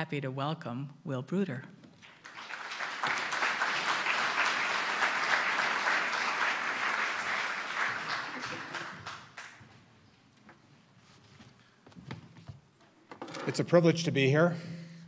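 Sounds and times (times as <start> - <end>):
audience applause: 2.0 - 9.6.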